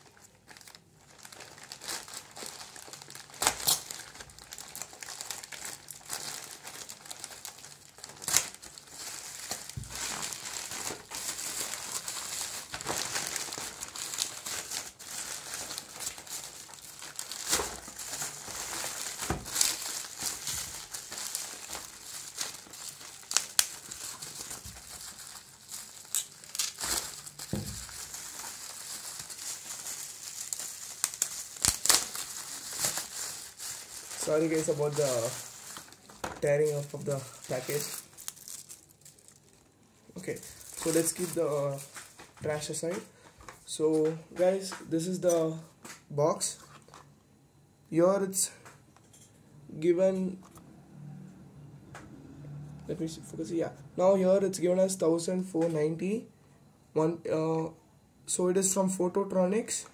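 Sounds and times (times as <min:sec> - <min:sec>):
bubble wrap crackles and rips: 0:00.0 - 0:43.1
plastic mailer crinkling: 0:00.0 - 0:45.1.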